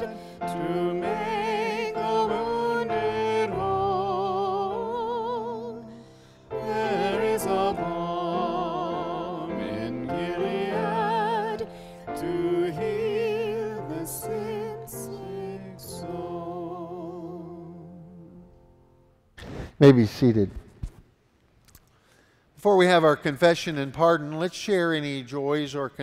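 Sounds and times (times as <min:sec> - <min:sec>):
voices singing a hymn: 0:00.0 - 0:18.6
sustained instrumental accompaniment: 0:00.0 - 0:19.1.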